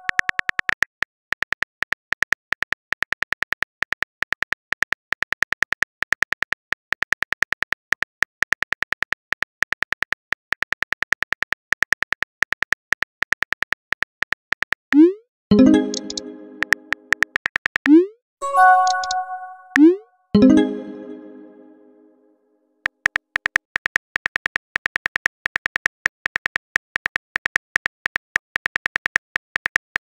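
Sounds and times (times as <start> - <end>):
plucked-sounding tone: 15.5 - 17.2, 18.4 - 22.3.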